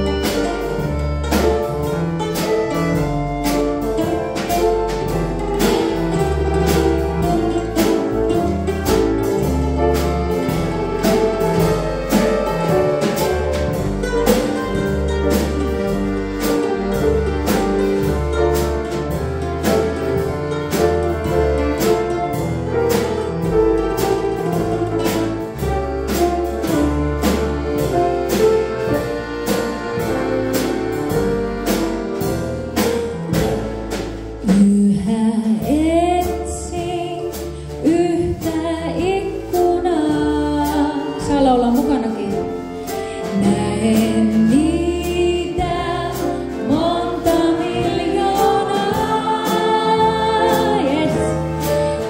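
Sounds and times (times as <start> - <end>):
drum beat: 0.0 - 34.6
live band playing: 0.0 - 52.0
woman singing with vibrato: 34.4 - 42.5, 43.1 - 51.7.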